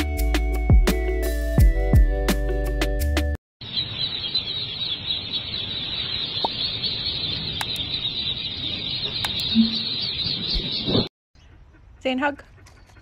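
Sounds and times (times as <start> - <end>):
ducklings peeping: 3.6 - 13.0.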